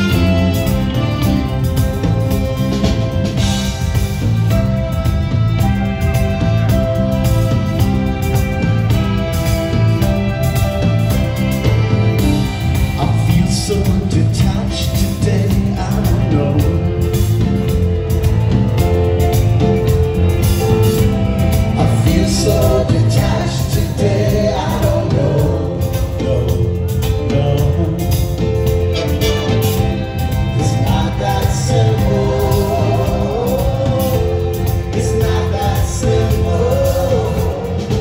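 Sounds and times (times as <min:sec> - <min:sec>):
live band playing amplified music: 0:00.0 - 0:38.0
man singing into microphone: 0:13.0 - 0:17.2, 0:21.8 - 0:28.6, 0:30.5 - 0:38.0.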